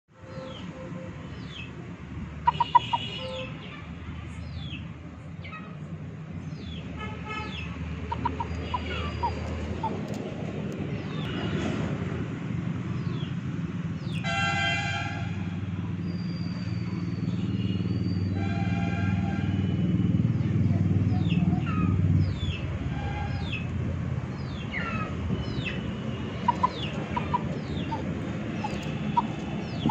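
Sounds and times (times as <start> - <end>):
low traffic rumble: 0.1 - 29.9
vehicle horn tooting: 2.5 - 3.9, 14.2 - 15.4.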